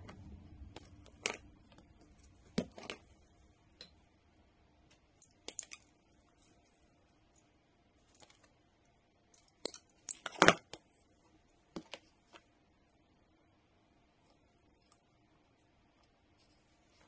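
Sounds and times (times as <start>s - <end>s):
small clicks and rustles of wires: 4.8s - 10.9s.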